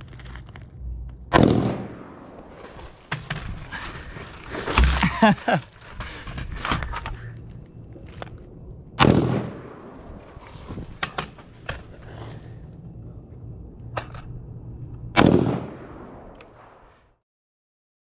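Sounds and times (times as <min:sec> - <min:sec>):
rifle shots with echo: 0:01.3 - 0:02.4, 0:09.0 - 0:10.0, 0:15.2 - 0:16.8.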